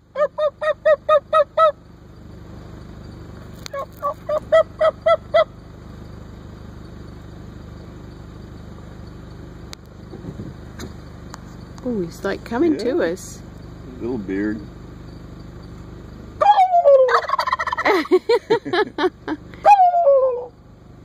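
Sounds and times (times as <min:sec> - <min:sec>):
steady low hum: 0:00.0 - 0:21.0
turkey yelping: 0:00.1 - 0:01.8, 0:03.7 - 0:05.6, 0:16.4 - 0:18.1, 0:19.6 - 0:20.6.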